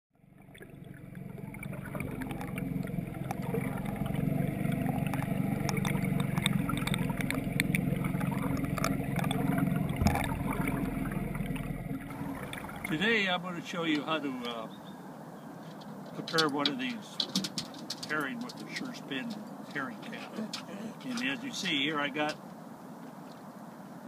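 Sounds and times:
clicks and gurgles: 0:00.2 - 0:13.2, 0:15.7 - 0:22.4
underwater water rushing: 0:00.2 - 0:14.4
boat motor underwater: 0:00.2 - 0:14.5.

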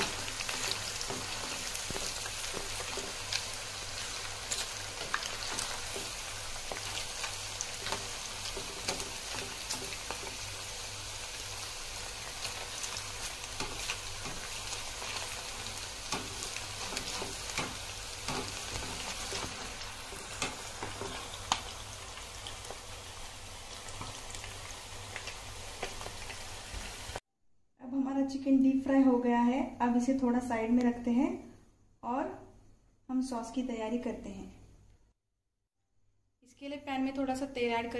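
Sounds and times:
chicken deep-frying in oil: 0:00.0 - 0:27.2.

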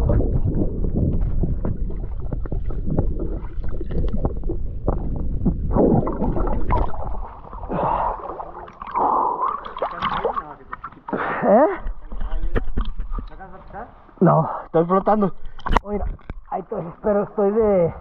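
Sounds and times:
low muffled rumble: 0:00.0 - 0:08.7
water sloshing and gurgling: 0:00.0 - 0:18.0.

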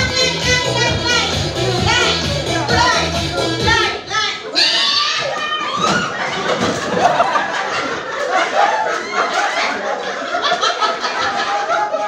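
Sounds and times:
people calling out: 0:00.0 - 0:06.3
group of people laughing: 0:04.8 - 0:12.0.

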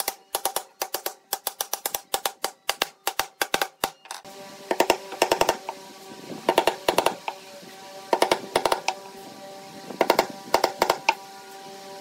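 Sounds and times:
hammer tapping nails: 0:00.0 - 0:05.6, 0:06.5 - 0:07.2, 0:08.1 - 0:09.0, 0:10.0 - 0:11.2.

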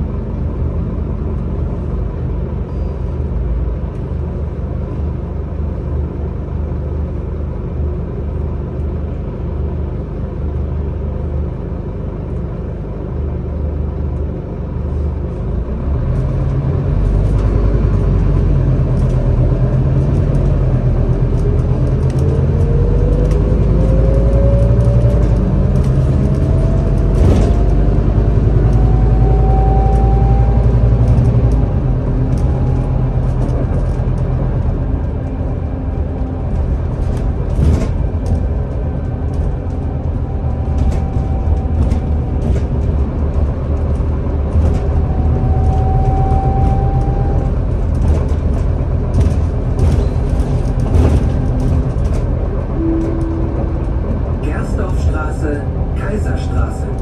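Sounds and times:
bus engine rumble: 0:00.0 - 0:57.0
rising whine: 0:21.2 - 0:36.6, 0:38.1 - 0:48.0, 0:51.5 - 0:54.9.

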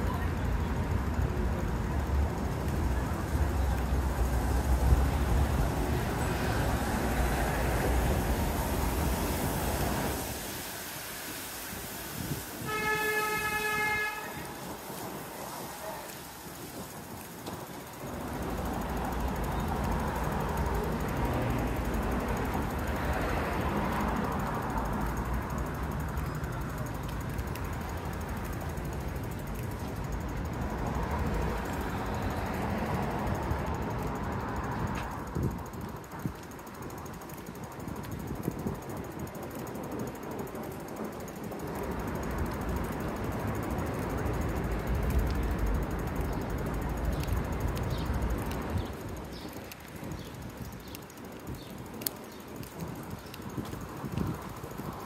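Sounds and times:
streetcar rumbling past: 0:00.0 - 0:36.2
horn steady tone: 0:12.2 - 0:14.8.

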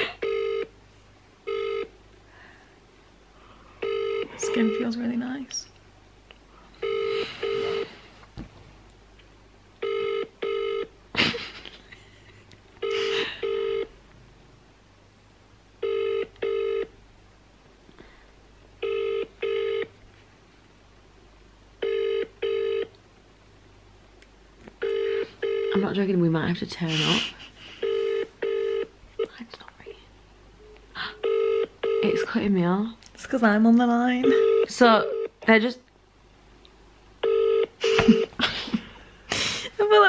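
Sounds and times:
phone ring-back tone: 0:00.1 - 0:00.7, 0:01.5 - 0:01.9, 0:03.8 - 0:04.9, 0:06.8 - 0:07.9, 0:09.8 - 0:10.9, 0:12.8 - 0:13.9, 0:15.8 - 0:16.9, 0:18.8 - 0:19.9, 0:21.8 - 0:22.9, 0:24.8 - 0:25.8, 0:27.8 - 0:28.9, 0:31.1 - 0:32.3, 0:34.2 - 0:35.4, 0:37.2 - 0:38.3.

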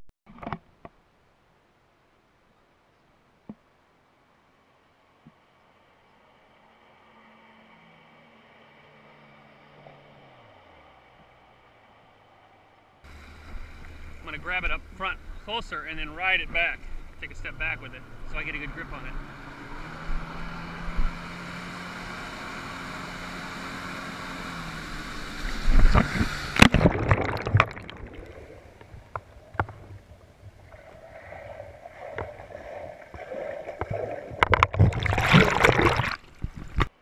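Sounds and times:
muffled water sounds: 0:12.3 - 0:19.2, 0:25.2 - 0:37.0
jet ski engine running: 0:12.3 - 0:26.7
loud water splash: 0:24.9 - 0:28.8, 0:31.9 - 0:36.9.

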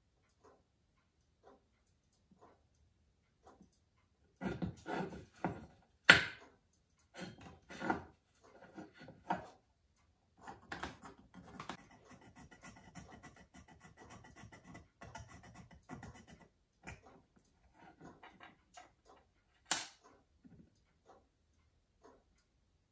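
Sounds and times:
hand tool scraping metal: 0:04.4 - 0:05.5.

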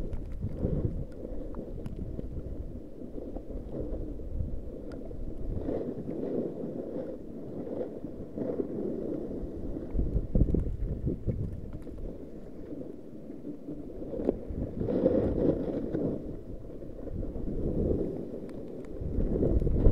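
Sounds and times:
faint ticks: 0:00.0 - 0:02.6, 0:04.7 - 0:06.3, 0:08.4 - 0:12.9, 0:17.7 - 0:19.9
wind buffeting microphone: 0:00.0 - 0:19.9.

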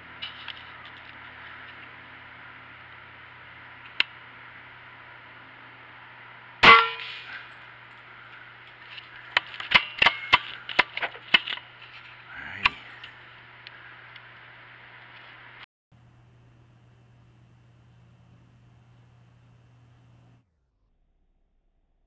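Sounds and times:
air rifle shot: 0:06.6 - 0:07.4.

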